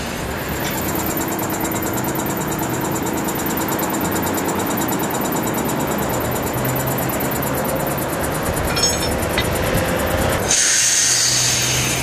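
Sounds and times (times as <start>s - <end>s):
tram mechanical running hum: 0.0s - 12.0s.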